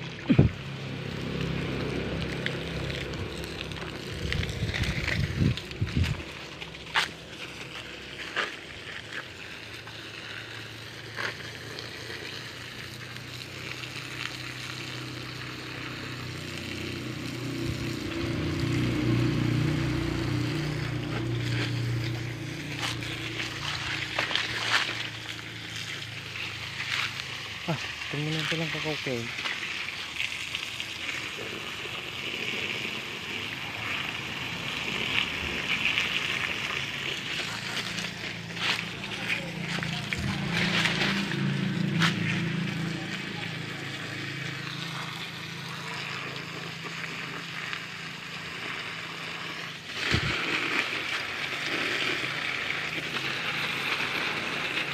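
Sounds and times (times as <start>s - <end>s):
low mechanical hum: 0.0s - 28.1s
hose water spraying on soil: 0.0s - 54.9s.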